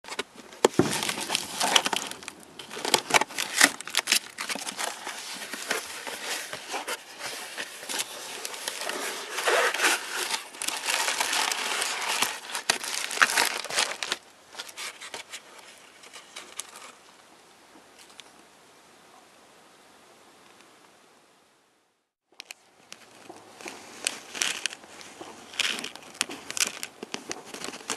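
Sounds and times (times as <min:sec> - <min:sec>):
bubble wrap crinkling: 0:00.1 - 0:17.0, 0:22.4 - 0:27.9
packing tape slit and torn: 0:00.9 - 0:06.3.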